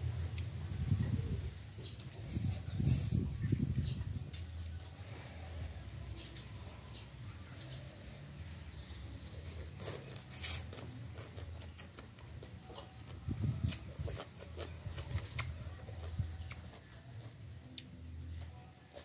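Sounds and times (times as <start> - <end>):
wet chewing: 9.4 - 19.0.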